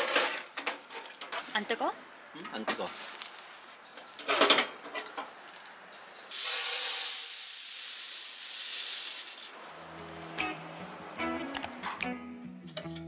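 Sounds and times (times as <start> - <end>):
coffee beans pouring into mesh tray: 6.3 - 9.6
background music: 9.8 - 13.0.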